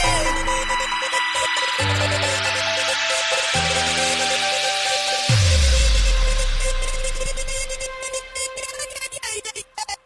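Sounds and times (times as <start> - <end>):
electronic dance music: 0.0 - 9.6.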